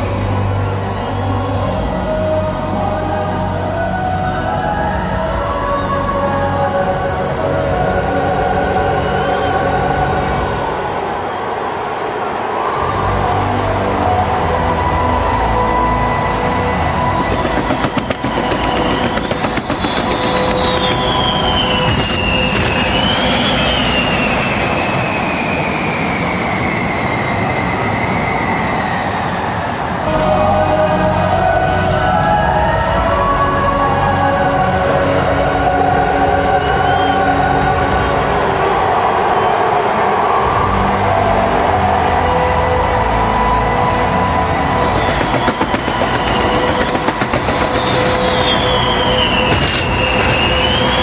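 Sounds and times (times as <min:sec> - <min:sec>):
jet engines roaring overhead: 0:07.8 - 0:30.4, 0:37.7 - 0:51.0
steady tones: 0:14.1 - 0:25.0, 0:43.0 - 0:51.0
engine whine falling in pitch: 0:16.1 - 0:29.6, 0:43.4 - 0:51.0.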